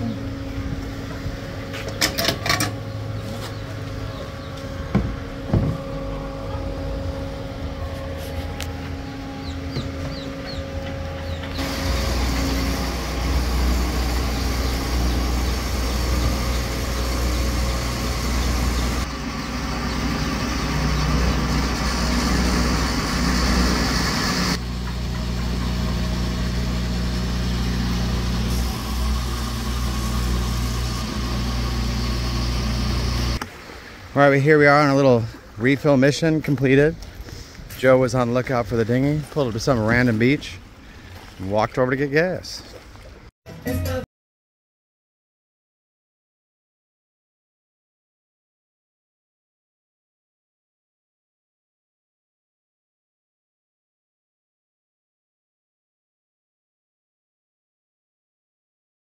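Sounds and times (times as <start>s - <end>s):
mechanical hum of motors: 0.0s - 34.1s.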